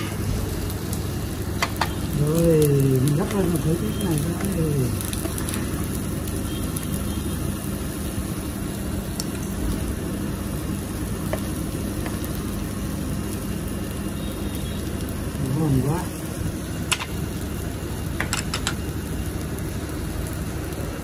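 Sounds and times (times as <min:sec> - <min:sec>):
broth simmering sizzle: 0:00.0 - 0:21.0
low mechanical hum: 0:00.0 - 0:21.0.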